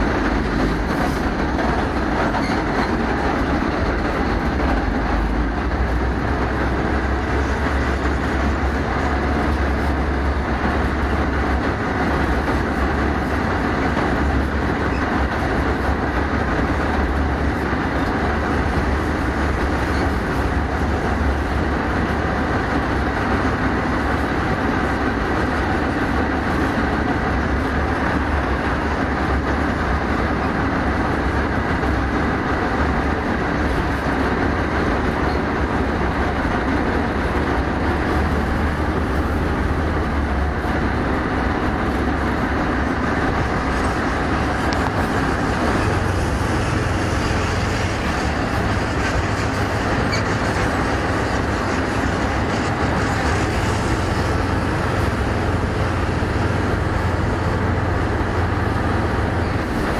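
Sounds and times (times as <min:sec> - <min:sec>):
tracks rumbling: 0:00.0 - 0:59.9
diesel engine running: 0:27.1 - 0:59.9.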